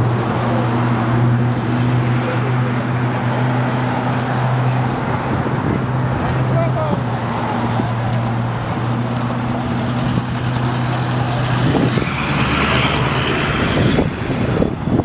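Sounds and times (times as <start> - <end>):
passing vehicle tyre noise: 0.0 - 15.0.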